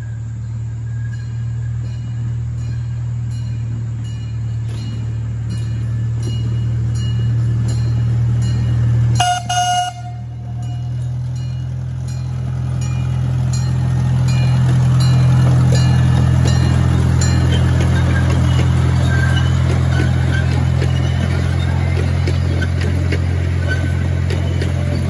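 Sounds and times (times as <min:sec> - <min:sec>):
miniature train engine humming: 0:00.0 - 0:25.0
train horn toot: 0:09.2 - 0:11.0.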